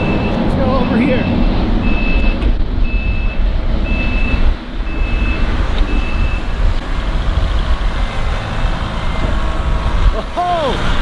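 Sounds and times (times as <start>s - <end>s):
reversing backup alarm beeping: 0.0s - 6.6s, 8.5s - 9.4s.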